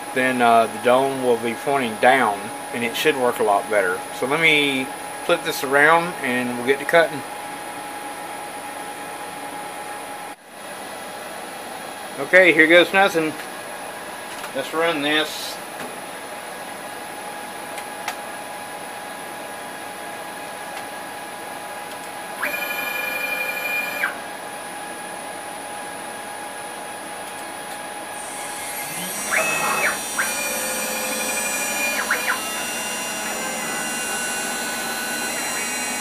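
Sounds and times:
end mill cutting metal: 0:22.4 - 0:24.2, 0:28.2 - 0:36.0
stepper motors: 0:22.4 - 0:24.2, 0:28.2 - 0:36.0
spindle whine: 0:28.1 - 0:36.0.

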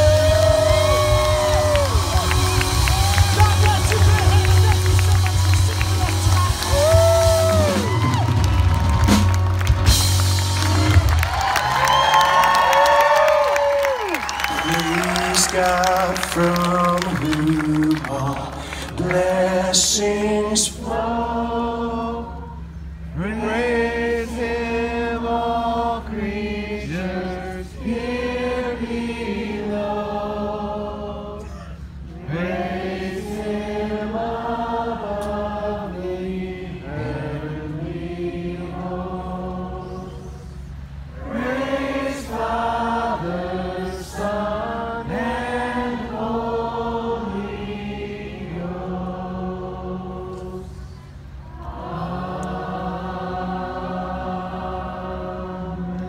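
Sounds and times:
singer and crowd singing: 0:14.6 - 0:40.6, 0:41.2 - 0:56.0.

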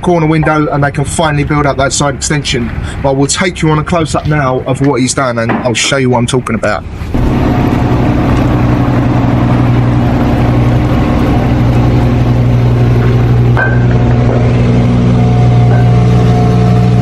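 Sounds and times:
motor humming: 0:07.0 - 0:17.0.

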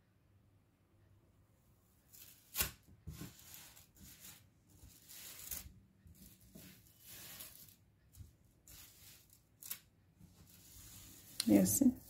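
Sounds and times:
beads rustling: 0:03.3 - 0:07.8.

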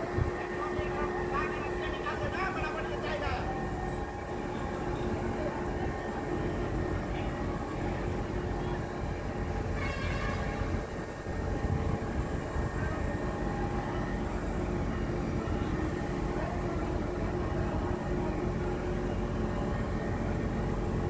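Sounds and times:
heavy machinery engine drone: 0:00.0 - 0:21.0.

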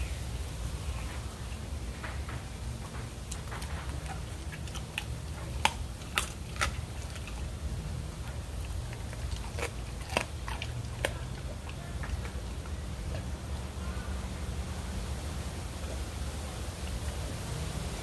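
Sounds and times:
dog crunching bones: 0:01.0 - 0:13.4.

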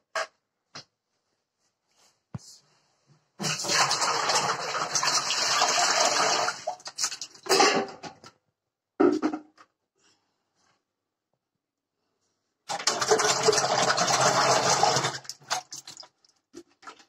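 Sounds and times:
yogurt pouring into metal drum: 0:03.4 - 0:07.3, 0:12.7 - 0:16.1
liquid gushes and splashes: 0:12.7 - 0:17.0.

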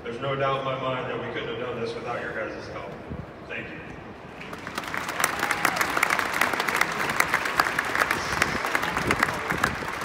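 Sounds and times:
crowd applauding: 0:04.4 - 0:10.0.

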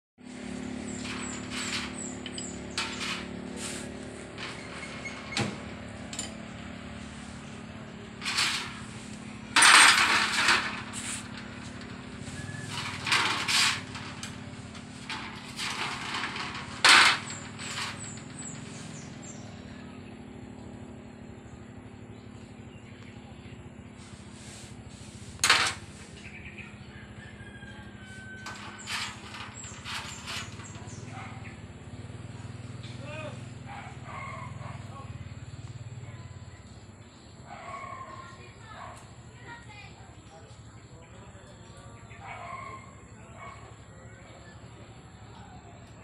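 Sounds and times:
birds chirping: 0:00.3 - 0:46.0
metal tools clinking and clattering: 0:00.6 - 0:06.5, 0:08.1 - 0:19.1, 0:25.4 - 0:26.0, 0:28.3 - 0:31.5.

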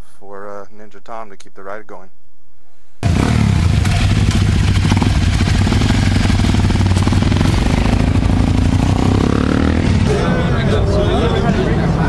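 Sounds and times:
motorcycle engine idling: 0:03.0 - 0:10.2.

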